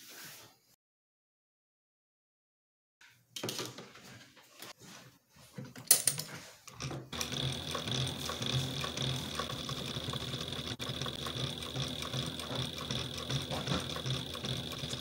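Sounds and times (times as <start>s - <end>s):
industrial sewing machine running: 6.8s - 15.0s.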